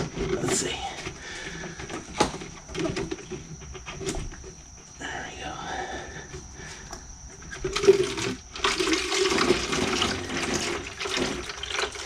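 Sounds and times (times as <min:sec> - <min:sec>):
coolant splashing into plastic jug: 0:07.5 - 0:12.0.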